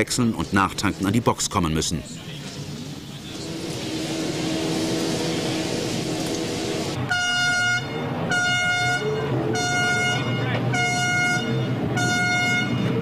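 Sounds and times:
low rumble and hiss: 0.0 - 7.2
horn blasts: 3.2 - 13.0.

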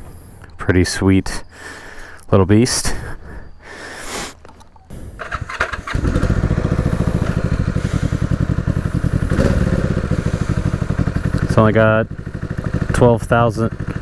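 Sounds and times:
motorcycle engine starting and idling: 4.4 - 14.0.

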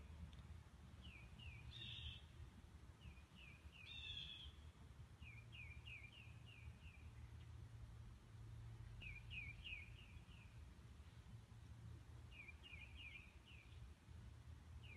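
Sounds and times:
birds chirping: 1.0 - 2.3, 9.0 - 10.6, 12.3 - 13.9.

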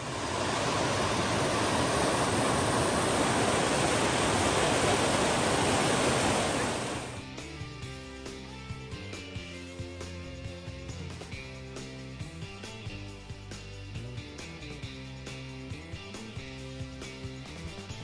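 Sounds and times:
waterfall rushing: 0.0 - 7.2.

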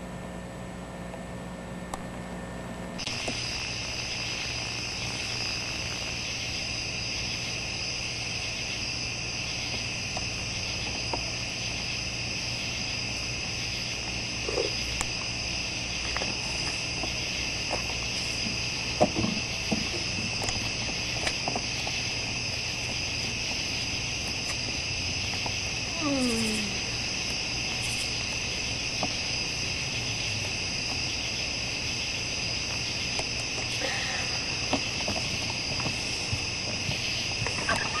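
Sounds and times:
night insects trilling: 3.0 - 38.0.

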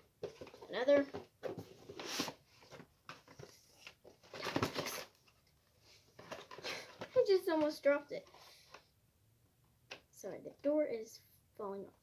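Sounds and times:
cardboard and plastic packaging rustling: 0.0 - 8.9.

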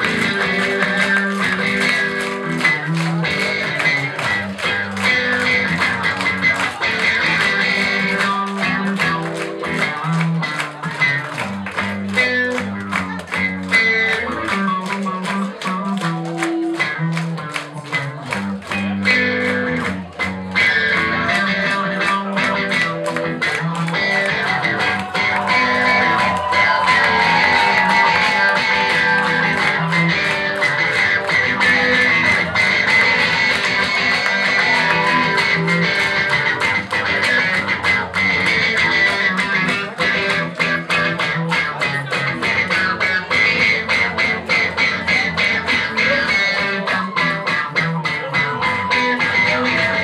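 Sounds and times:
bass guitar: 0.0 - 50.0
drums: 0.0 - 50.0
electric guitar: 0.0 - 50.0.

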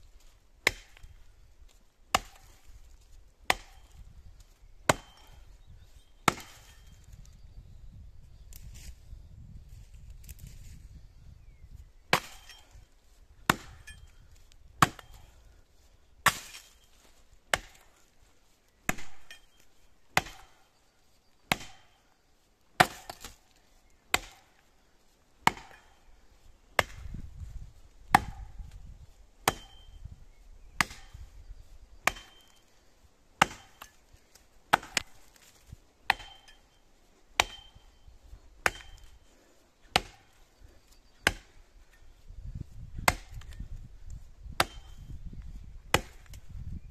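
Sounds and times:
axe chopping tree trunk: 0.6 - 5.5, 6.2 - 7.3, 12.0 - 15.4, 16.2 - 18.0, 18.8 - 20.7, 21.4 - 22.0, 22.7 - 24.7, 25.4 - 26.1, 26.8 - 30.1, 30.7 - 31.4, 32.0 - 32.7, 33.4 - 46.8.

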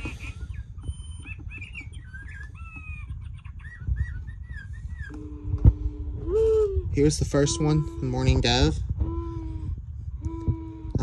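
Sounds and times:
chirping whistles: 0.0 - 5.2
low steady cooing tone: 5.0 - 11.0.

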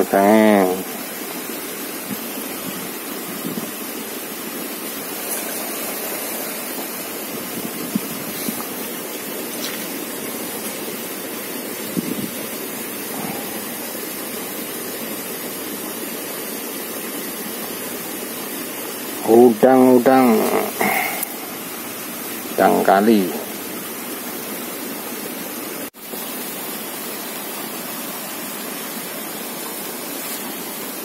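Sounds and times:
steady rushing noise: 0.0 - 23.5.

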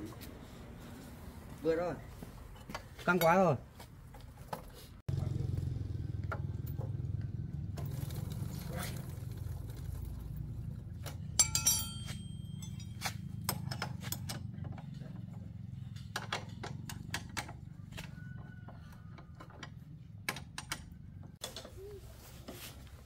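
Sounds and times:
hard objects clinking: 11.2 - 14.4.

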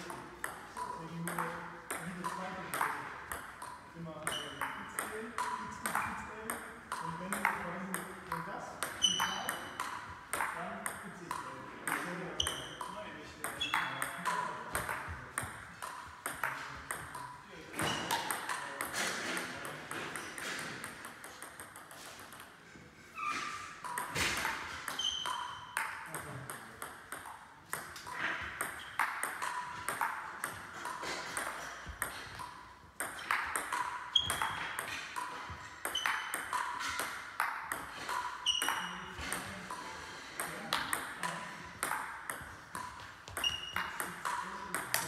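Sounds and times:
table tennis ball clicking: 23.8 - 39.4.

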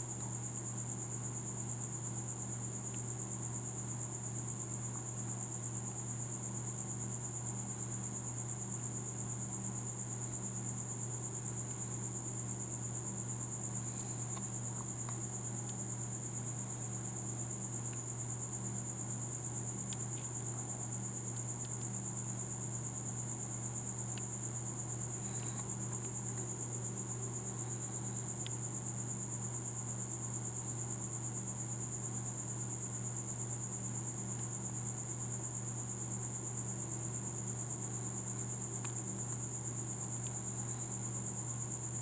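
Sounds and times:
low steady hum: 0.0 - 42.0
faint ticks: 14.0 - 15.8, 19.8 - 20.3, 24.1 - 24.4, 25.2 - 26.5, 38.4 - 39.4.

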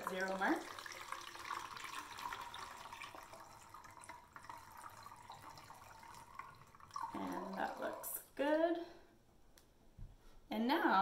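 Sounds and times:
water trickling into bottle: 0.0 - 8.4.

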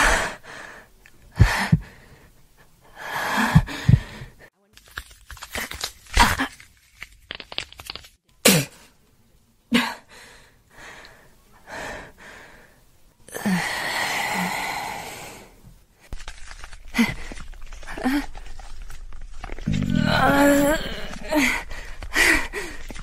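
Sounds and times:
woman gasping and crying in pain: 0.0 - 2.2, 2.9 - 4.4, 16.8 - 19.0, 19.6 - 23.0.

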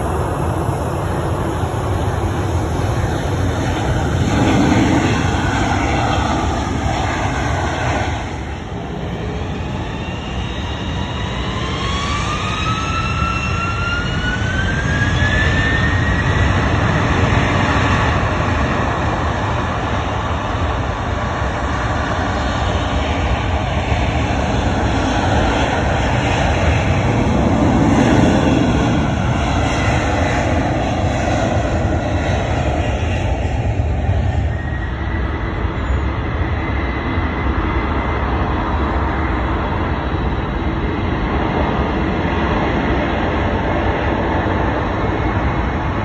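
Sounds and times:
turbine whine rising: 0.0 - 18.2
jet engines rumbling: 0.0 - 46.0.

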